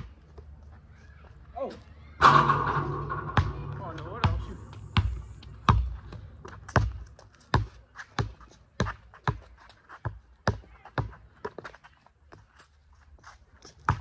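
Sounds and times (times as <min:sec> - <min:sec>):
basketball bouncing on hard court: 0:02.8 - 0:09.4.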